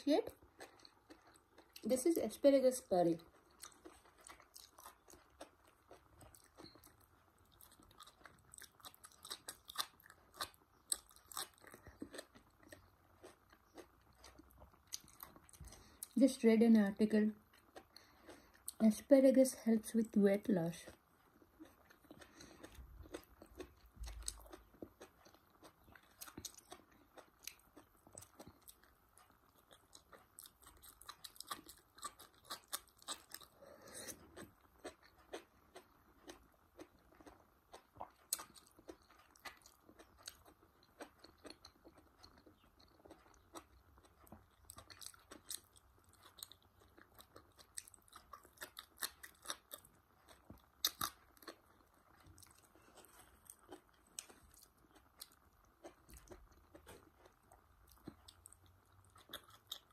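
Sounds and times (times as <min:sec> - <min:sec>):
wet chewing and crunching: 0:00.0 - 0:19.7, 0:20.4 - 0:59.9.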